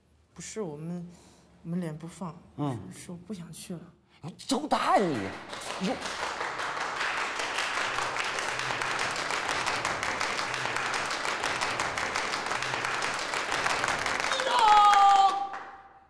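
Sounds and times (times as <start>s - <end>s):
people applauding: 5.0s - 16.0s.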